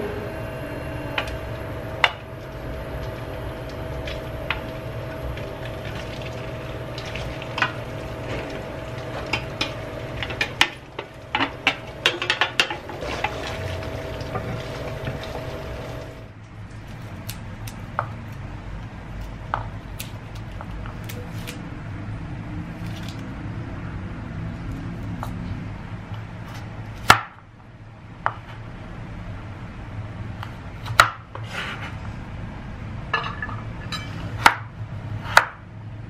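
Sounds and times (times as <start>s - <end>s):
induction cooktop hum: 0.0s - 36.0s
spatula scraping metal tray: 7.5s - 15.7s
garlic being peeled clicks: 16.9s - 18.5s.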